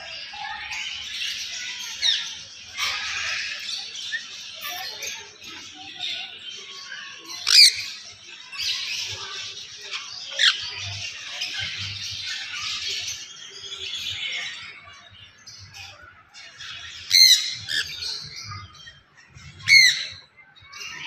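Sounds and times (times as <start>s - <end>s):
parrots chattering calls: 2.0s - 4.9s, 7.4s - 8.0s, 17.0s - 18.0s, 19.6s - 20.1s.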